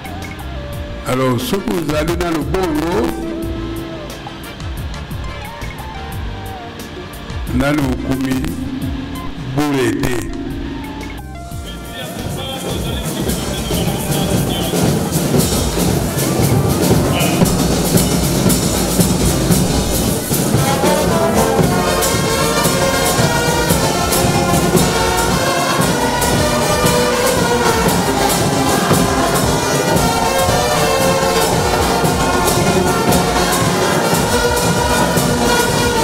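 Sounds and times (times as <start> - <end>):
brass band playing: 0.9 - 36.0
snare and bass drums: 7.3 - 36.0.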